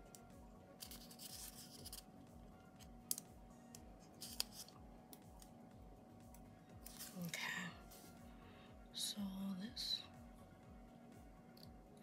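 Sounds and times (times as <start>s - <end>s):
paper sticker rustling: 0.8s - 2.0s, 4.2s - 4.7s.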